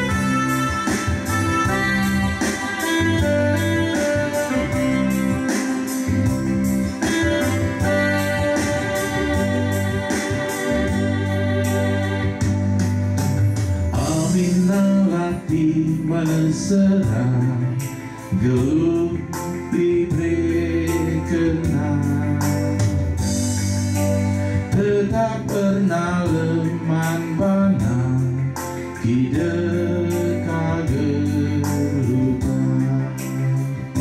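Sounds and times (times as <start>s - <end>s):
electronic keyboard organ chords: 0.0s - 34.0s
man singing a hymn: 14.0s - 22.8s, 24.7s - 33.7s.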